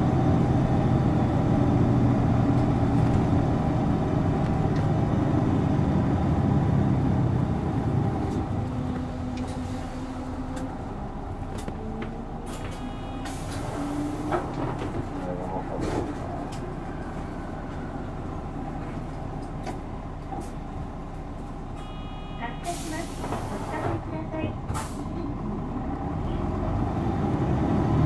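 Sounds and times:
bus engine under power: 0.0s - 28.0s.

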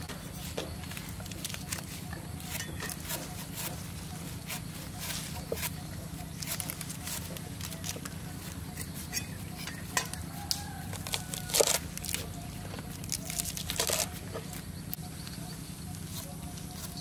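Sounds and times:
leaves rustling and stems snapping: 1.0s - 2.0s, 6.3s - 8.2s, 10.0s - 16.7s.

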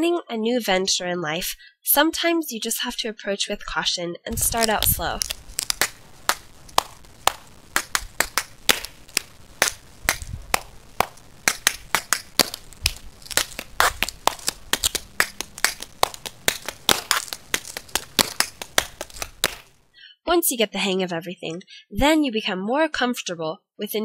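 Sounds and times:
tap shoes on concrete: 4.3s - 19.7s.

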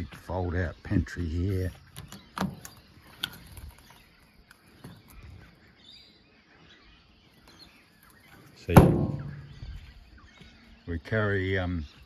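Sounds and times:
bird chirping: 0.0s - 12.0s.

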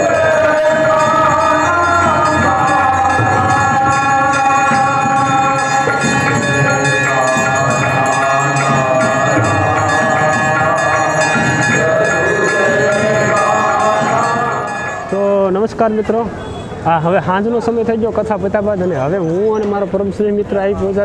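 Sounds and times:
slow devotional music: 0.0s - 15.6s
bells ringing rapidly: 0.0s - 16.2s.

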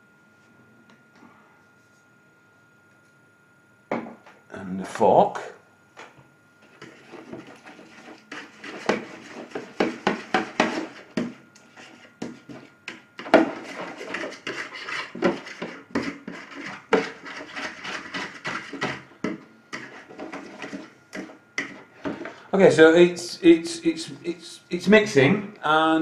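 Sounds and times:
fork scraping a container: 6.6s - 21.9s.

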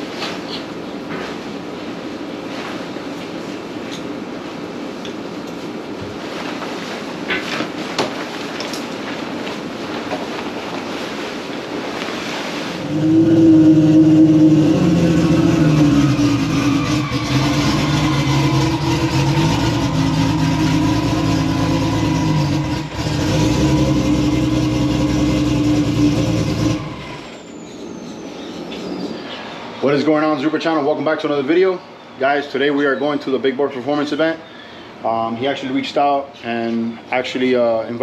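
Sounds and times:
car engine droning: 12.7s - 30.9s.

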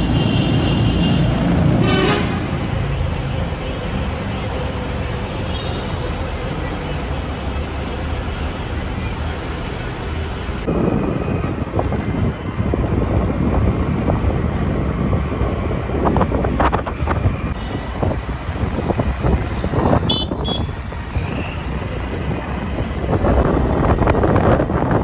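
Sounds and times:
vehicle road noise: 0.0s - 25.0s
wind buffeting microphone: 10.6s - 25.0s.

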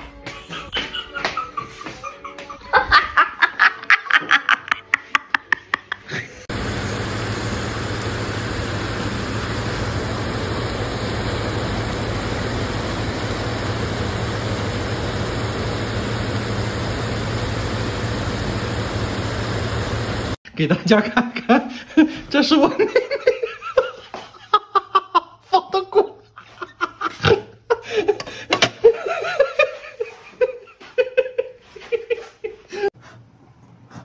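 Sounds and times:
person laughing hard: 0.1s - 6.5s, 21.2s - 32.9s.

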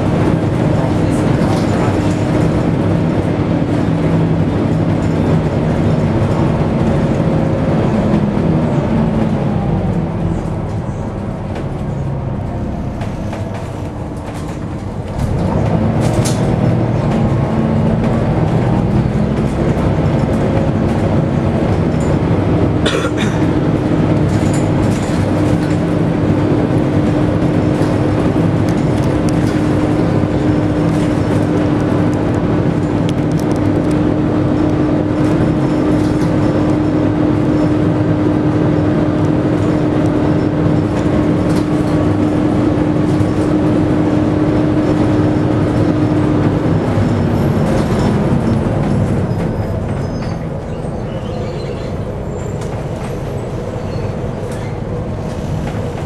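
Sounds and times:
cooling fan drone: 0.0s - 51.1s
bus diesel engine running: 0.0s - 56.0s.

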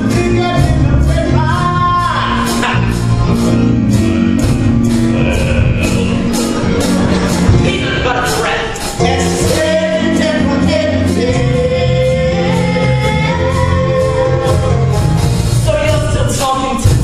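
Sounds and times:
steady bass line: 0.0s - 17.0s.

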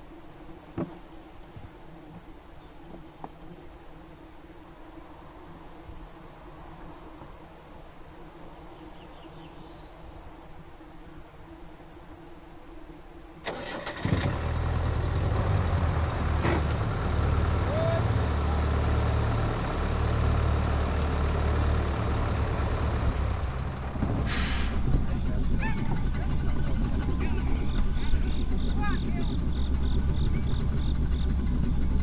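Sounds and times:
truck engine starting and idling: 13.4s - 32.0s
short hiss: 24.2s - 24.9s.

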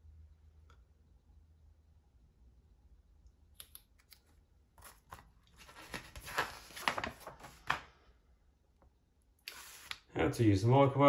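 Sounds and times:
paper pages turning: 4.0s - 8.0s, 9.5s - 10.0s.

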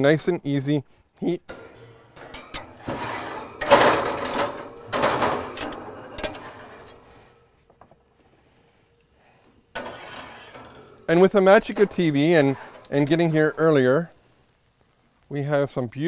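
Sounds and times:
cookware rattling and scraping: 1.5s - 7.1s, 9.8s - 13.6s.

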